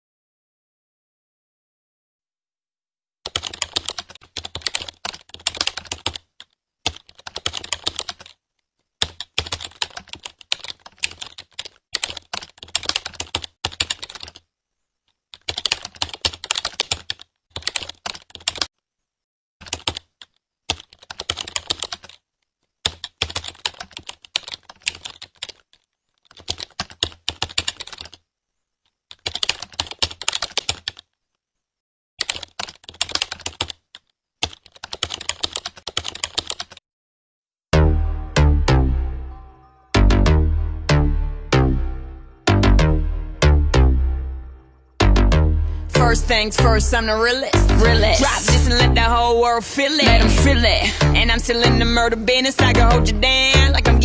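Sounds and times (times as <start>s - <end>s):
keyboard typing: 3.2s - 14.5s, 15.1s - 18.7s, 19.6s - 22.2s, 22.8s - 28.2s, 29.0s - 31.2s, 32.2s - 36.8s, 46.2s - 51.7s.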